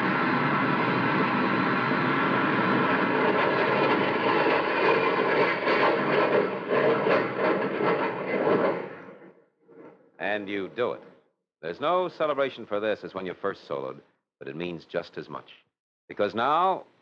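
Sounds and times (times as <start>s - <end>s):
jet engine rushing: 0.0s - 9.1s.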